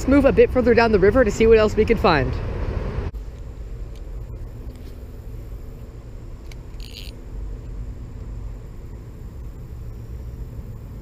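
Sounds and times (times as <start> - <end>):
low rumbling background noise: 0.0 - 11.0
fishing line running off reel: 6.4 - 7.2.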